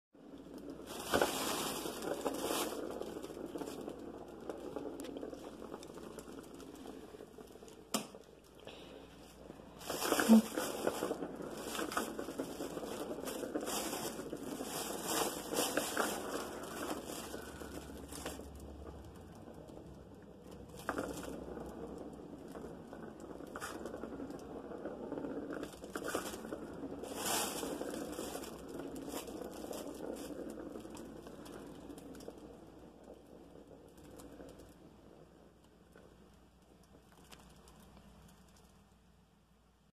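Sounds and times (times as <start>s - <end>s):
plastic ball rolling and clicking: 0.2s - 39.8s
fabric tunnel rustling and crinkling: 0.9s - 3.3s, 9.7s - 18.4s, 27.0s - 30.3s.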